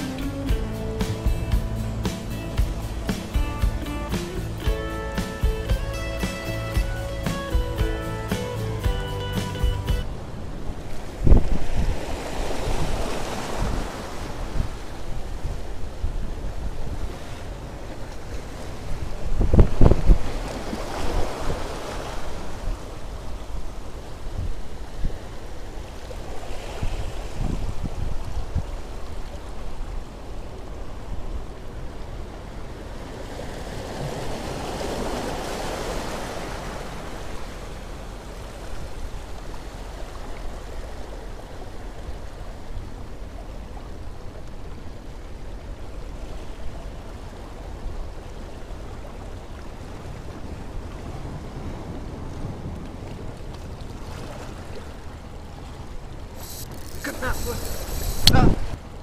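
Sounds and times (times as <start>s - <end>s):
wind rumbling on microphone: 10.0s - 35.6s, 56.1s - 59.0s
waves washing against rocks: 10.2s - 43.3s, 45.8s - 59.0s.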